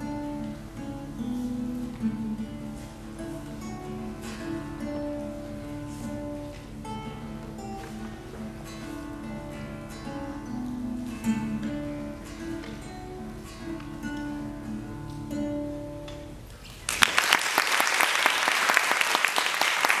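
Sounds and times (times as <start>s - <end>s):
classical guitar plucking: 0.0s - 17.0s
audience applauding: 16.8s - 20.0s.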